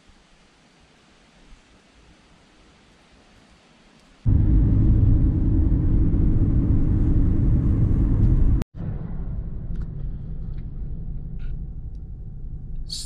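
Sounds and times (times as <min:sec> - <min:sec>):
car road and engine noise: 0:04.2 - 0:13.0.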